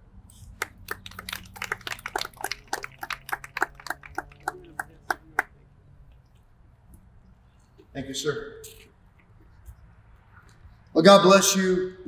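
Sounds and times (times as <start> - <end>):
audience clapping sparsely: 0.6 - 5.5.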